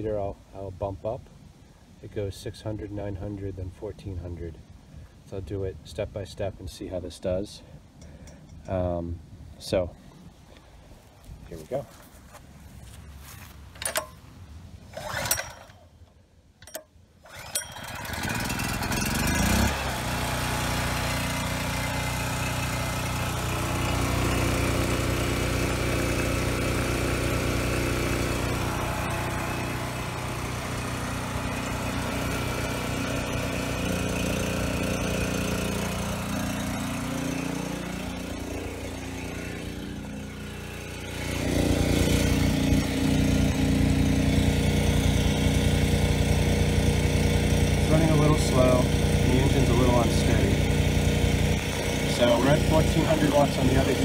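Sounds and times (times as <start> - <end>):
generator engine running: 14.9 - 15.8, 16.6 - 54.0.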